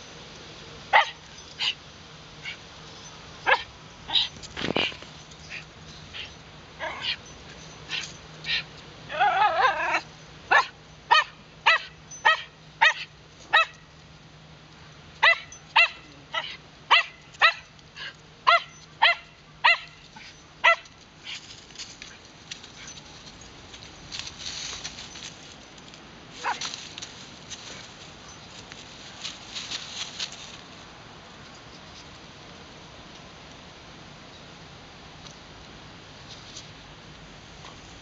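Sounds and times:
dog barking: 0:00.9 - 0:01.8, 0:03.4 - 0:04.3, 0:09.3 - 0:13.7, 0:15.2 - 0:17.7, 0:18.5 - 0:19.9, 0:20.6 - 0:20.9, 0:26.4 - 0:26.7
dog whining: 0:03.5 - 0:13.7.

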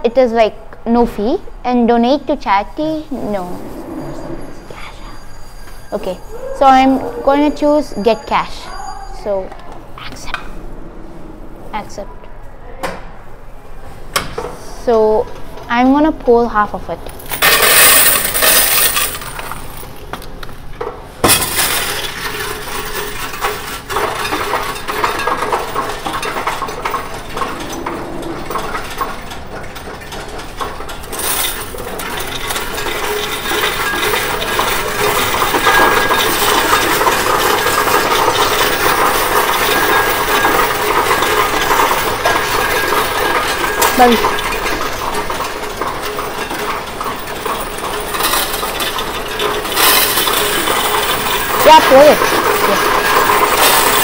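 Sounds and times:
loud coin crash: 0:17.1 - 0:20.0, 0:21.2 - 0:54.0
coins clattering in machine tray: 0:17.1 - 0:20.1, 0:21.2 - 0:54.0.

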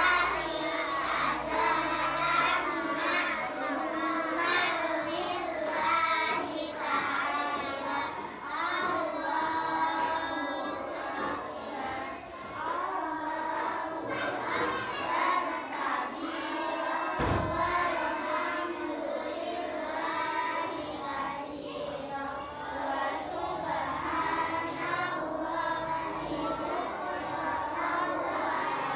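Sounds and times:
children chanting a prayer: 0:00.0 - 0:28.9
low thump: 0:17.2 - 0:17.7.

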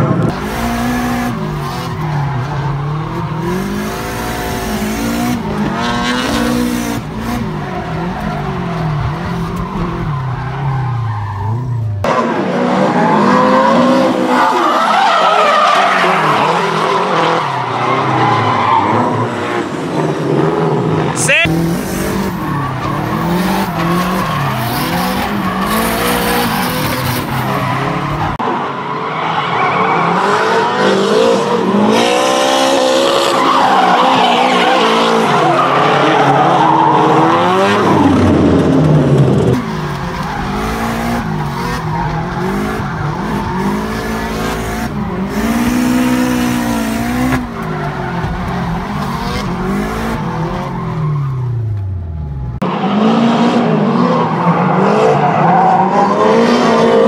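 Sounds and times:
car engines revving hard: 0:00.0 - 0:57.0.

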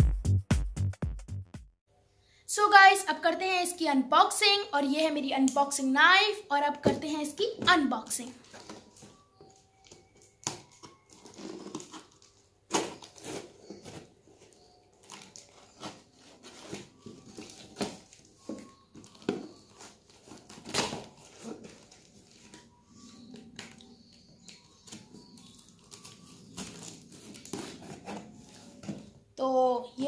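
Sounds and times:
knife cutting packing tape: 0:09.8 - 0:18.3, 0:18.9 - 0:22.6, 0:23.3 - 0:28.4.

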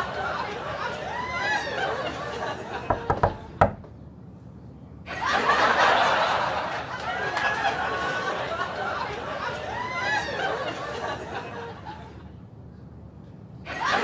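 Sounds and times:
people laughing: 0:00.0 - 0:03.6, 0:05.0 - 0:12.4, 0:13.6 - 0:14.0
quick sharp knocks: 0:02.9 - 0:04.0.

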